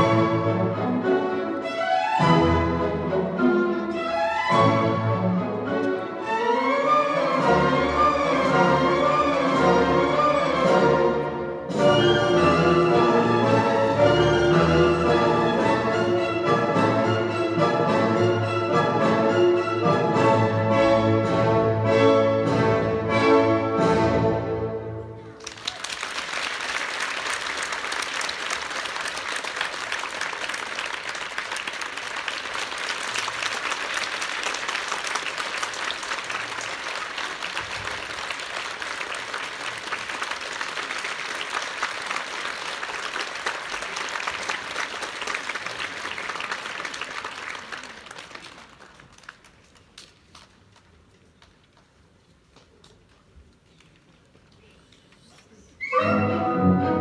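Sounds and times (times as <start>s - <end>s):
audience applauding: 25.3s - 50.9s.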